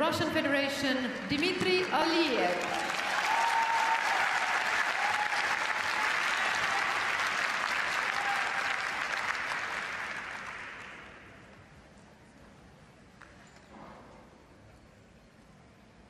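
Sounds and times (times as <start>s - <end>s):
audience applauding: 1.8s - 11.2s.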